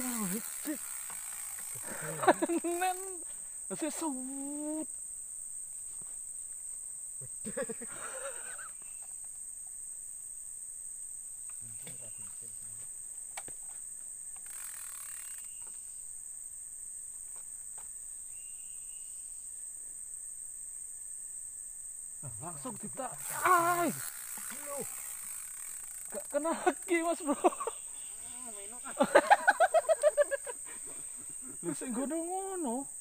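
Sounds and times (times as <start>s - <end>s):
insects droning: 0.0s - 33.0s.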